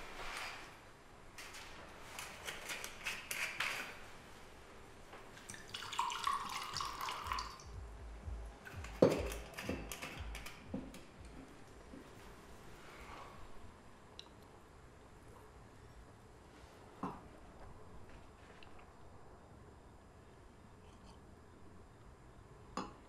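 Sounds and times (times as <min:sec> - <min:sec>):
wine pouring into a glass: 0:05.4 - 0:07.6.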